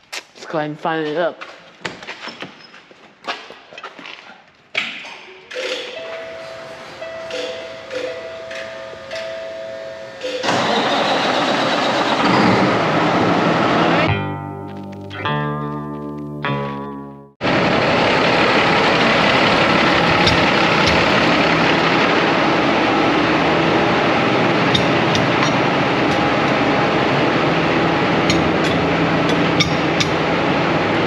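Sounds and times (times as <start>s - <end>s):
truck diesel engine idling: 6.1s - 14.1s, 17.4s - 31.0s.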